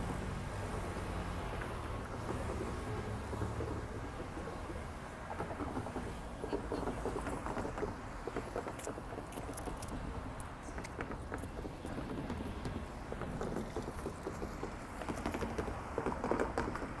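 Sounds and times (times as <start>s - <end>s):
traffic rumble: 0.0s - 17.0s
light clicks and taps: 5.3s - 16.9s.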